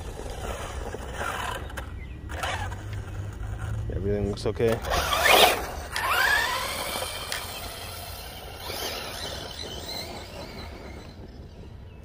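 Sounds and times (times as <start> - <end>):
rc car electric motor whining: 0.0 - 3.8, 4.7 - 11.5.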